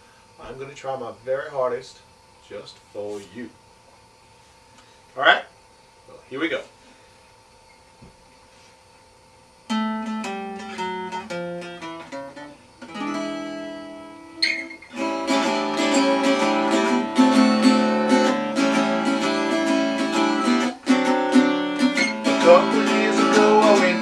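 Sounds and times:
guitar playing blues: 9.7 - 24.0.

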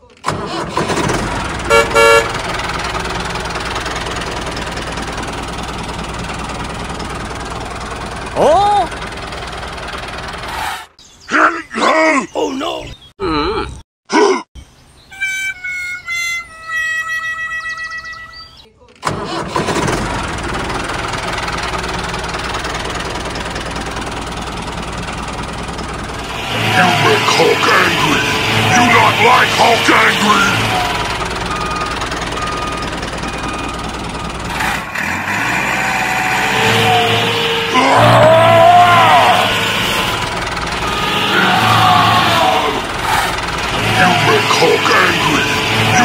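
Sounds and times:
tractor engine running: 0.0 - 10.9, 19.0 - 46.0.

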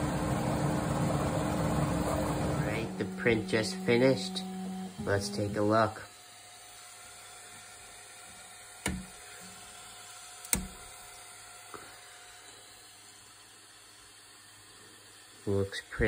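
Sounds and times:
low background hum: 0.0 - 16.0
sharp click: 10.4 - 10.8.

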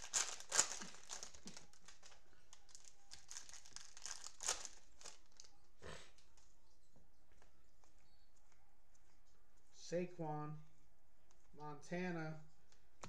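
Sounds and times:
cellophane wrapper crinkling: 0.0 - 5.6.

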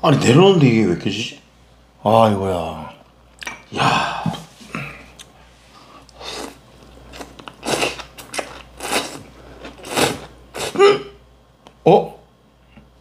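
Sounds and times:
noodles being slurped: 6.2 - 10.8.

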